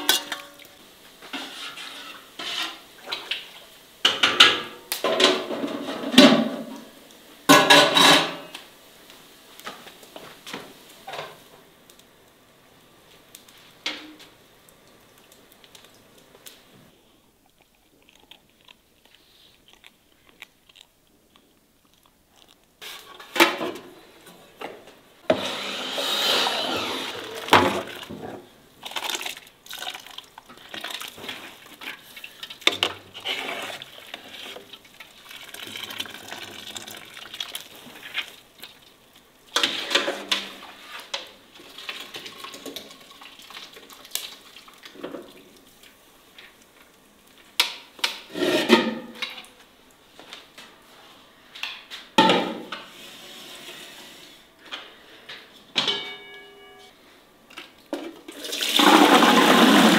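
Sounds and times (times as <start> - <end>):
water splashing in metal pot: 28.8 - 40.5, 41.6 - 45.4, 58.2 - 59.9.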